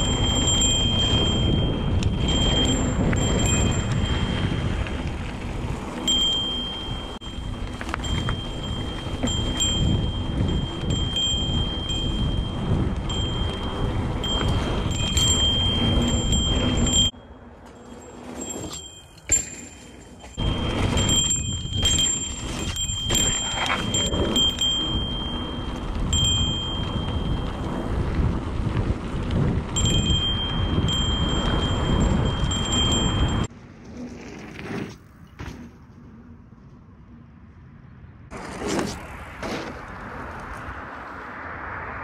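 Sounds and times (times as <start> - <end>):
high ringing tone: 0.0 - 4.6, 6.0 - 28.0, 29.8 - 33.5
bike tyre noise on dirt: 0.0 - 37.6, 38.3 - 42.0
wind noise: 0.0 - 42.0.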